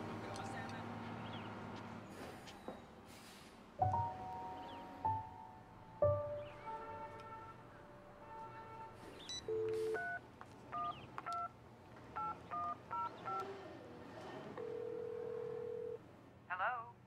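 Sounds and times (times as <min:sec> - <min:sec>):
touch-tone keypad beeps: 0:09.3 - 0:10.2, 0:10.8 - 0:11.5, 0:12.2 - 0:13.4
long steady phone line tone: 0:09.3 - 0:11.5, 0:14.6 - 0:16.0
dial tone: 0:14.6 - 0:16.0.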